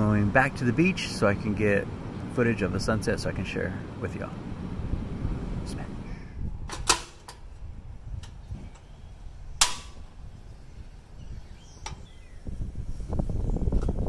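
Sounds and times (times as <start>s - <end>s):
stove igniter clicking: 9.6s - 10.1s, 11.8s - 12.2s.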